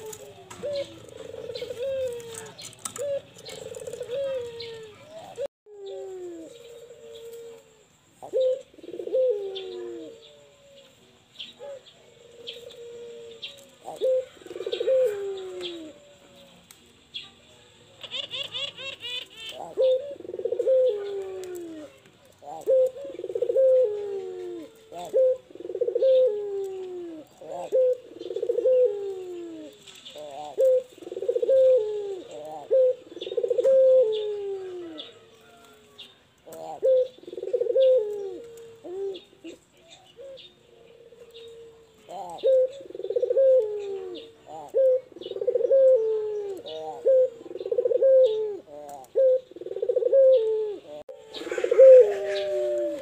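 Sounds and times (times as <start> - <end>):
dove cooing: 0.0 - 16.6, 18.0 - 53.0.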